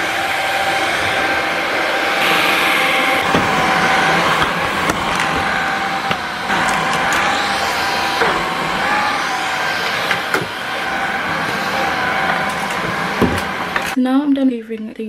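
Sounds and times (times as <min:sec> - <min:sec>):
stick vacuum cleaner motor whine: 0:00.0 - 0:14.0
vacuum head knocking: 0:02.2 - 0:14.0.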